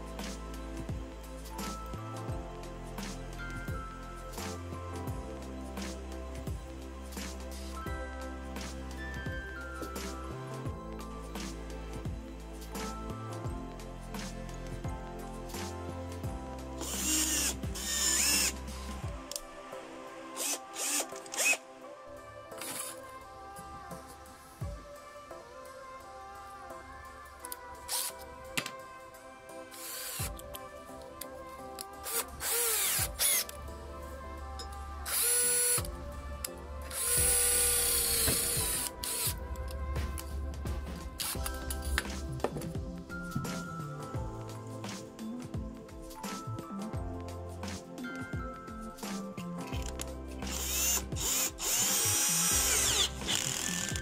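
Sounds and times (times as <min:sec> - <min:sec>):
background music: 0:00.0 - 0:54.0
cordless drill spinning: 0:16.8 - 0:19.4, 0:20.4 - 0:21.6, 0:27.9 - 0:28.2, 0:29.7 - 0:30.5, 0:32.0 - 0:33.6, 0:35.0 - 0:35.9, 0:36.9 - 0:39.4, 0:49.7 - 0:54.0.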